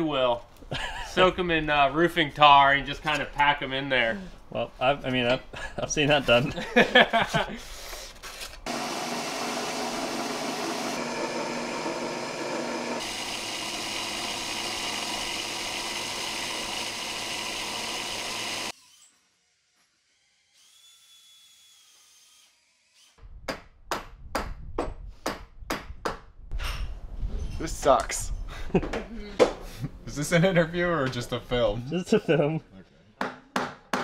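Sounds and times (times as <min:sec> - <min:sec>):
power tool running: 0:08.7 - 0:18.9.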